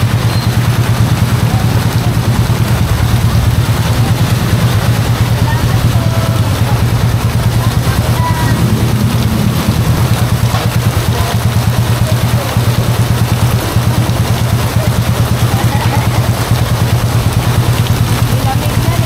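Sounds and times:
heavy rain hissing: 0:00.0 - 0:19.0
small engine idling: 0:00.0 - 0:19.0.

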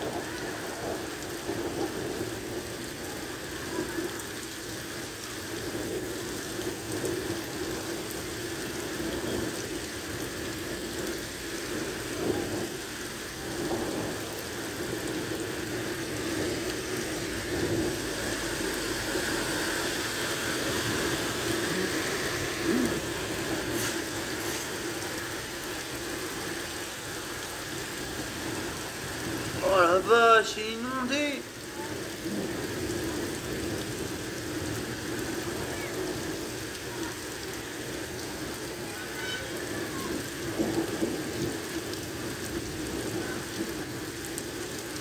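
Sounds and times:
heavy rain on pavement: 0:00.0 - 0:45.0
truck splashing through floodwater: 0:16.2 - 0:26.7.

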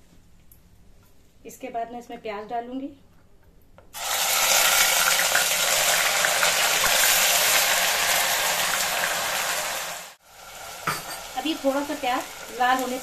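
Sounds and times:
paste sizzling in hot oil: 0:04.0 - 0:13.0.

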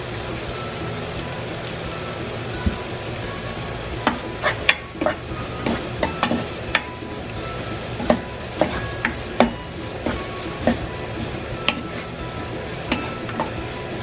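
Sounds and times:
low steady sizzle: 0:00.0 - 0:14.0
spatula scraping frying pan: 0:04.0 - 0:14.0.

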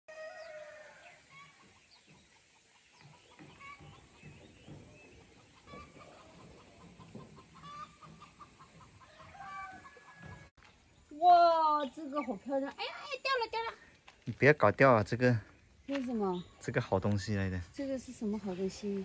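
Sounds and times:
faint chickens clucking: 0:00.1 - 0:10.5.

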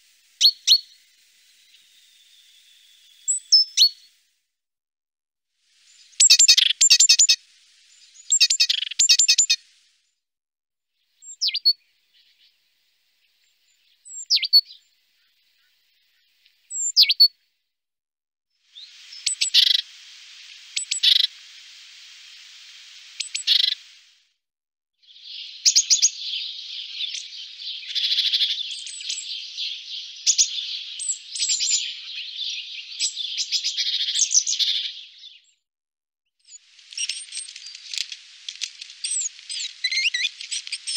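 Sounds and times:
bird chirping and chattering: 0:06.2 - 0:07.4, 0:08.2 - 0:09.6, 0:36.9 - 0:40.9.

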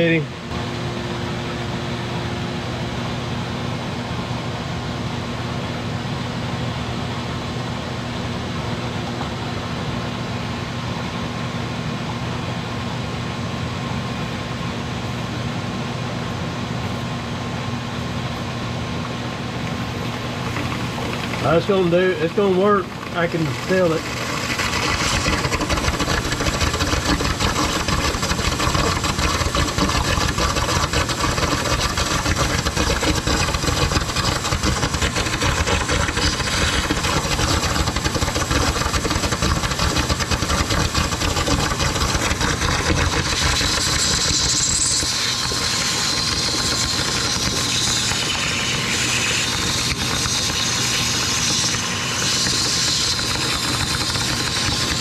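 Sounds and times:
vacuum pump running: 0:00.0 - 0:55.0.

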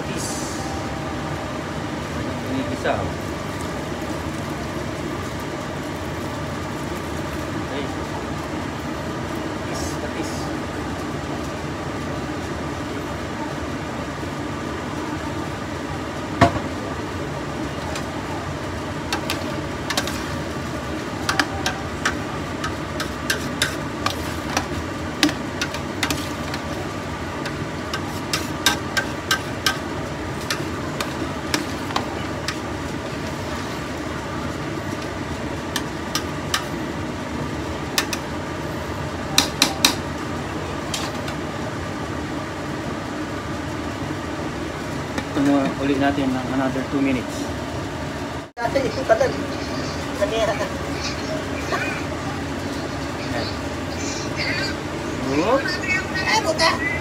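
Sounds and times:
steady hum: 0:00.0 - 0:57.0
utensil clinking and scraping: 0:19.1 - 0:20.5, 0:21.2 - 0:26.8, 0:27.4 - 0:32.7.

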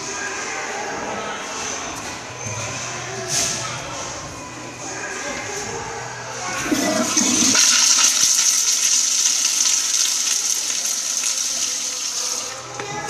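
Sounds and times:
toilet flushing: 0:06.4 - 0:12.8.

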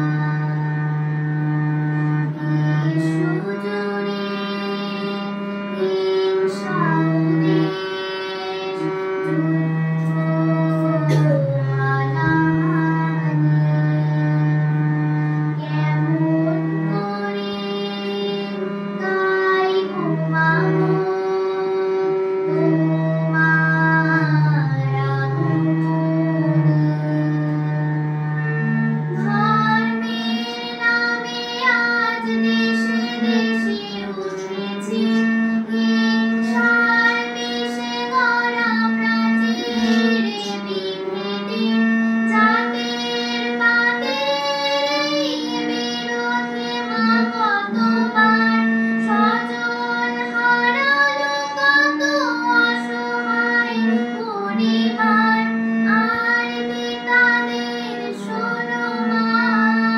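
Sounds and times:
girl singing: 0:00.0 - 0:59.9
harmonium: 0:00.0 - 0:59.9.

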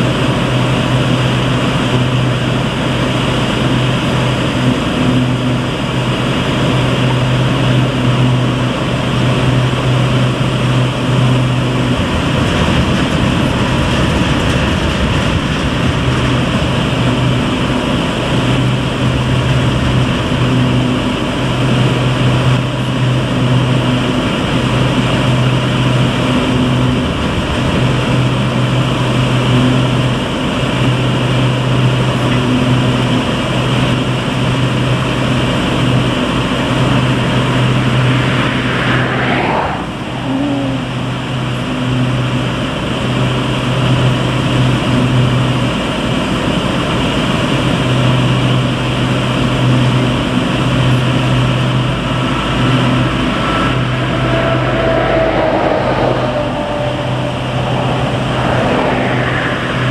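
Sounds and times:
deep machine hum: 0:36.6 - 0:42.0, 0:51.8 - 0:59.9.

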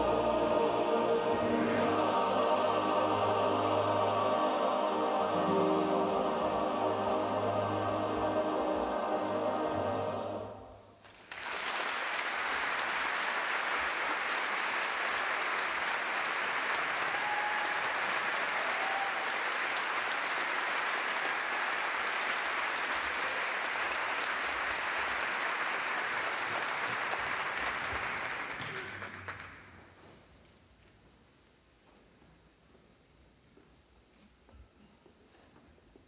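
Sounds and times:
audience applauding: 0:11.0 - 0:29.9.

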